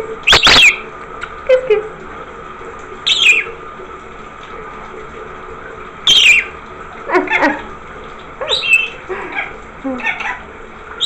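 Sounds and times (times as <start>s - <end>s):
parrot chattering call: 0.3s - 0.8s, 3.1s - 3.5s, 8.4s - 10.4s
parrot screeching: 0.3s - 0.8s, 3.1s - 3.5s, 6.1s - 6.5s, 8.4s - 10.4s.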